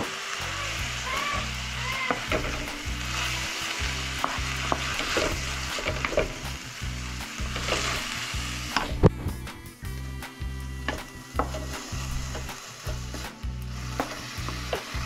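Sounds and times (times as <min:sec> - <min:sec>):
carrot sizzling in a pan: 0:00.0 - 0:15.0
wooden spatula scraping: 0:04.2 - 0:06.5, 0:07.4 - 0:08.2, 0:10.9 - 0:15.0.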